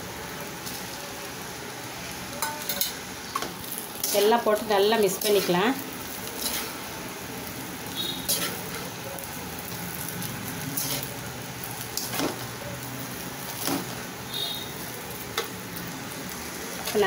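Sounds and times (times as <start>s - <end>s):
food sizzling in wok: 0.0s - 17.0s
metal spatula scraping pan: 6.4s - 6.8s, 8.0s - 8.8s, 10.7s - 11.1s.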